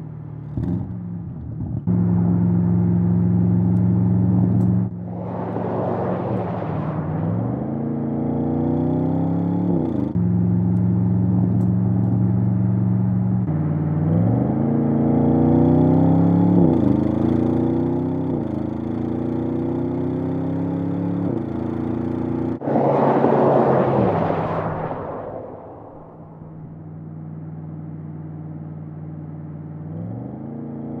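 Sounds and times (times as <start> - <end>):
car engine accelerating: 1.8 - 18.6, 20.5 - 26.9
rough rushing noise: 4.9 - 7.9, 22.6 - 26.8.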